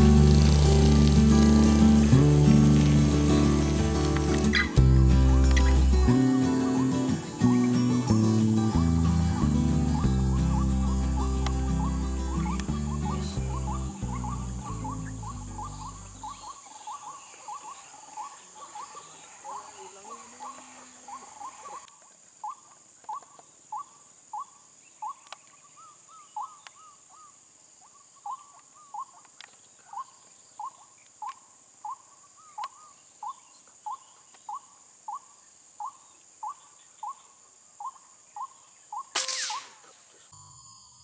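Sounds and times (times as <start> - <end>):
insects buzzing: 0.0 - 41.0
bird calling clipped notes: 4.0 - 4.8, 5.4 - 5.9, 9.9 - 19.6, 21.1 - 23.9, 25.0 - 25.7, 26.4 - 26.9, 28.3 - 34.6, 37.8 - 40.2.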